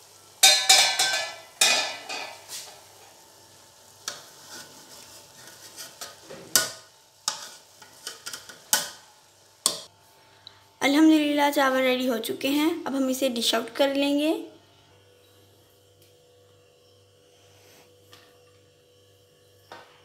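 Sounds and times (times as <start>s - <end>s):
metal spoon scraping metal pot: 4.0s - 8.6s.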